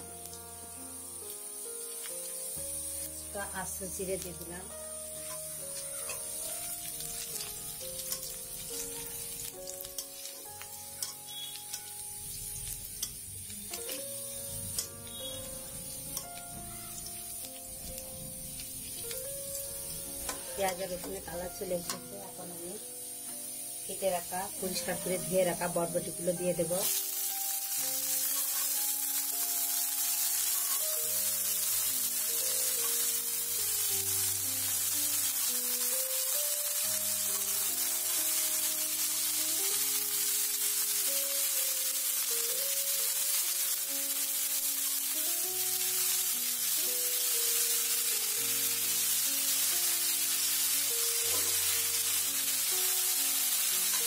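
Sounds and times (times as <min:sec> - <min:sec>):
onion and garlic sizzling in oil: 0:00.0 - 0:54.0
soft background music: 0:00.0 - 0:54.0
metal spatula scraping a pan: 0:05.2 - 0:06.5, 0:20.2 - 0:20.9.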